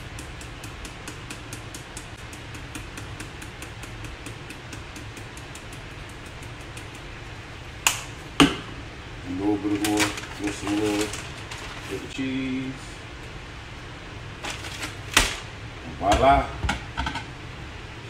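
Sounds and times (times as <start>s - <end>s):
person speaking: 9.2s - 13.1s.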